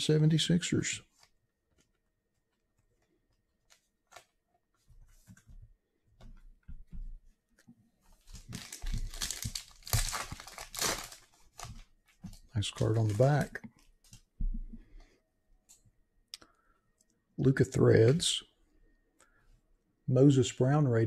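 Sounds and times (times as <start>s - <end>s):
wrapper tearing and crinkling: 8.3s - 11.8s.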